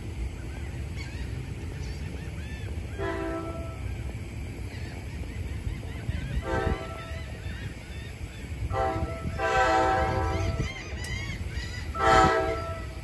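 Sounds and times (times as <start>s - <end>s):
steady low rumble: 0.0s - 13.0s
train air horn blast: 2.9s - 4.0s, 6.4s - 7.2s, 8.7s - 10.8s, 11.9s - 13.0s.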